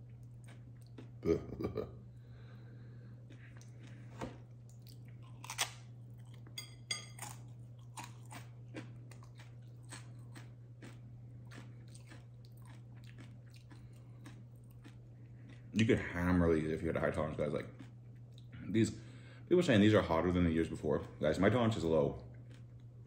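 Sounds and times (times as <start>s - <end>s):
soft chewing: 0.0s - 19.2s, 20.7s - 23.0s
chip crunching: 4.6s - 18.5s, 20.6s - 23.0s.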